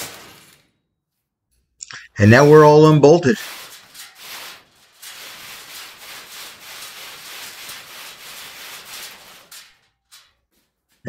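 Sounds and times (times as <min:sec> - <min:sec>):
metal rasping and rubbing: 0:02.2 - 0:11.0.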